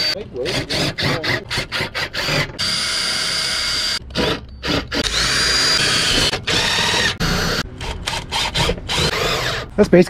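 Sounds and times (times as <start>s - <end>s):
cordless drill whining: 2.2s - 9.6s.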